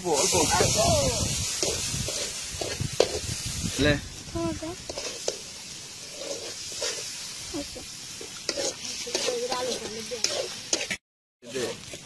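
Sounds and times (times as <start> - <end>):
sauce sizzling in pan: 0.0 - 12.0
metal spatula scraping pan: 4.8 - 11.0.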